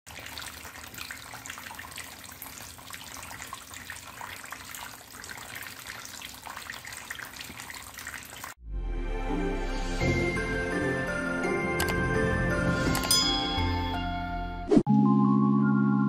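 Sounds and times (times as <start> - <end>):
water jets splashing into tub: 0.0 - 8.6.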